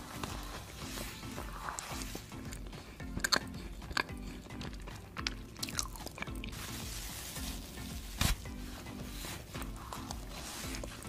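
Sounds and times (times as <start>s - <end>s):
background music with steady beat: 0.0s - 11.0s
mouth chewing with wet clicks: 1.8s - 6.5s.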